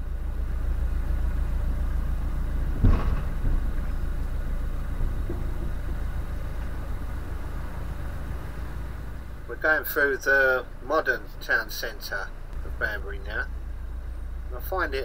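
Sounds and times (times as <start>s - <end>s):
diesel engine running: 0.0s - 15.0s
loud knock: 2.8s - 3.8s.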